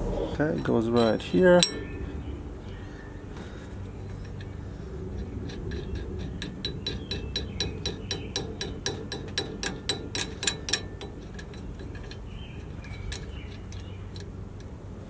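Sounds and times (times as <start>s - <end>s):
nut spinning with metallic clicks: 4.0s - 14.7s.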